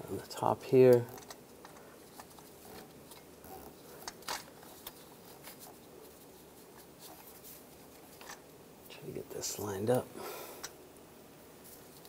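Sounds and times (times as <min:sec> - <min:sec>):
rustling of gloved hands: 0:00.4 - 0:08.9, 0:11.5 - 0:12.0.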